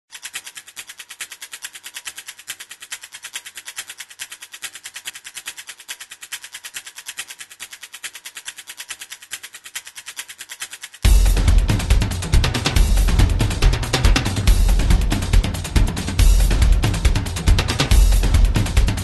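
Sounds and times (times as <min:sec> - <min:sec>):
rapid mechanical clicking: 0:00.1 - 0:19.0
music: 0:11.1 - 0:19.0.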